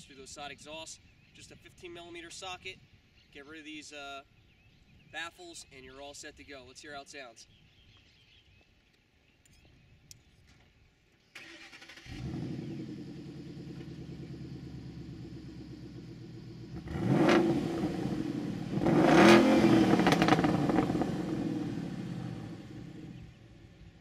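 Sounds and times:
car engine starting and revving: 11.4s - 23.3s.

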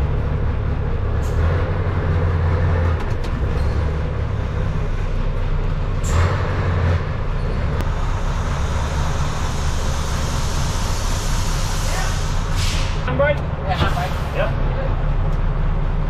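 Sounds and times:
brief hiss: 10.3s - 13.0s.

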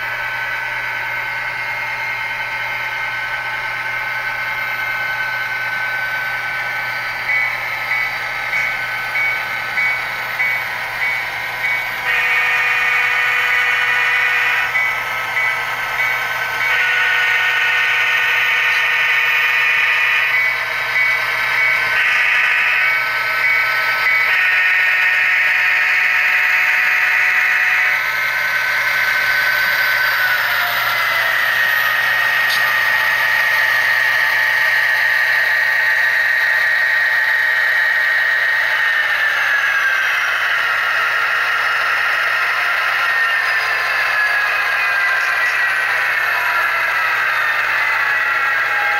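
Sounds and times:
diesel engine sound from speakers: 0.0s - 24.0s, 27.2s - 48.9s
horn blasts: 12.0s - 20.6s, 21.6s - 28.3s.

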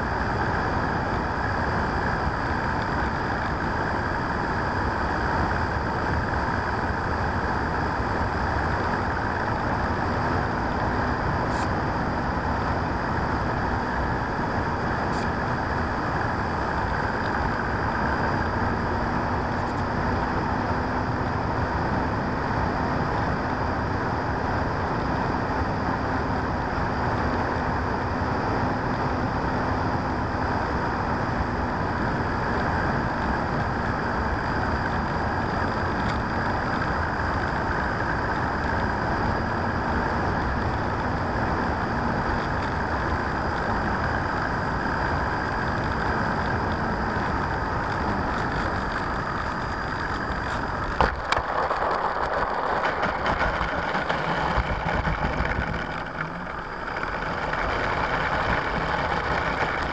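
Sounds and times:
airflow and motor howl: 0.0s - 59.9s
wheels rattling on pavement: 0.0s - 59.9s
wheels knocking on touchdown: 48.5s - 59.9s.

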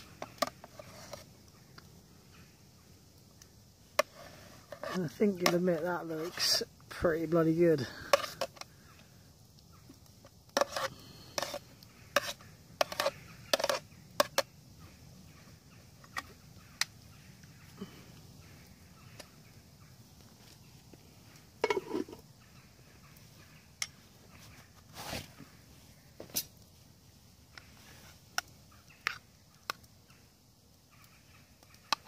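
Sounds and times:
utensil scraping a pot: 0.1s - 1.3s, 4.0s - 6.6s, 7.8s - 8.7s, 10.2s - 14.5s, 21.6s - 22.2s.

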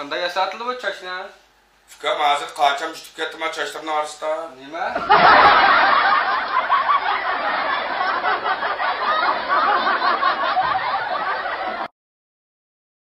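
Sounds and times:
crowd laughing: 4.9s - 11.9s.

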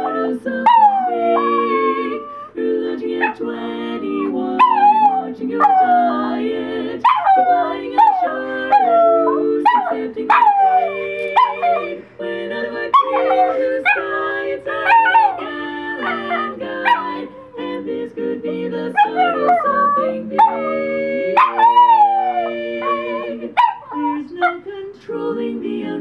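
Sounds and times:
dog howling: 0.0s - 2.5s, 3.2s - 3.4s, 4.2s - 6.4s, 7.0s - 11.9s, 12.9s - 17.3s, 19.0s - 24.6s.

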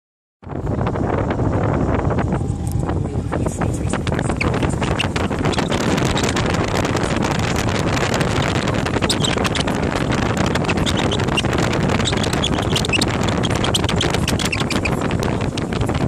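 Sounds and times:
wind buffeting microphone: 0.4s - 16.0s
motorcycle engine running: 3.3s - 16.0s.

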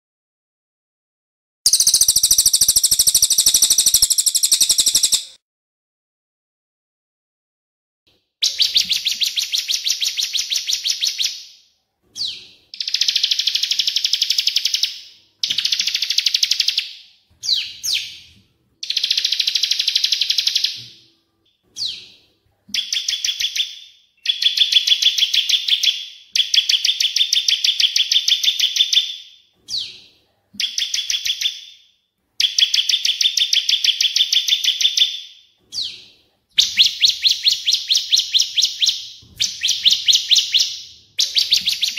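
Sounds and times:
birds repeating high notes: 1.7s - 5.4s, 36.6s - 41.9s.

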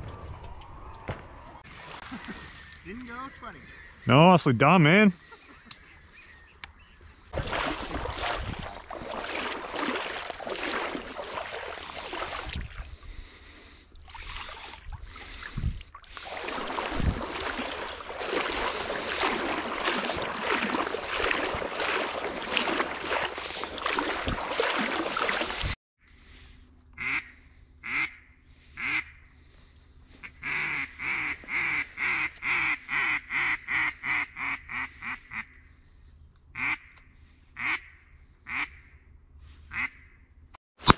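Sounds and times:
splashing through water and reeds: 1.7s - 4.0s, 7.2s - 25.8s, 30.2s - 33.2s
duck quacking: 27.0s - 29.1s, 30.2s - 35.6s, 36.6s - 37.0s, 37.6s - 38.9s, 39.7s - 40.2s.

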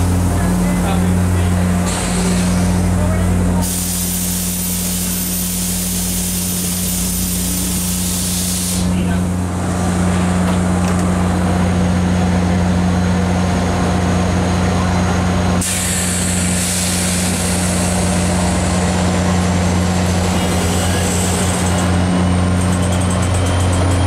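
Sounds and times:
locomotive engine humming: 0.0s - 24.0s
compressed air hissing: 3.6s - 9.0s, 15.6s - 18.1s.

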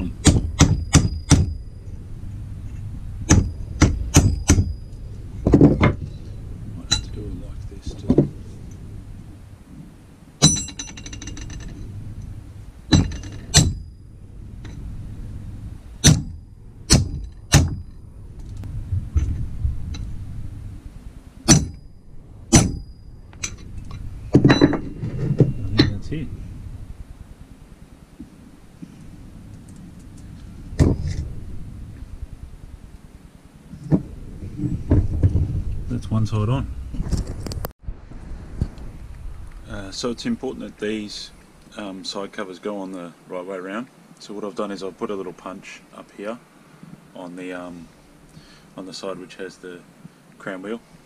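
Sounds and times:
high metallic ring: 0.0s - 7.2s, 10.4s - 14.9s, 21.5s - 26.3s
hammer striking metal pipe: 0.2s - 1.6s, 10.4s - 11.6s, 12.9s - 13.9s, 21.5s - 21.8s, 22.5s - 23.6s.

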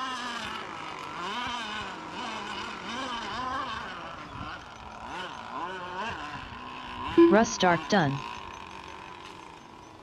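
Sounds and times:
toy boat motor running: 0.0s - 10.0s.

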